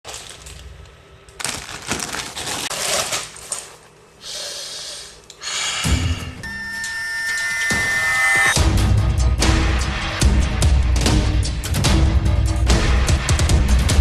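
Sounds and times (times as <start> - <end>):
plastic packaging crinkling: 0.0 - 4.1
person sniffing: 4.2 - 6.4.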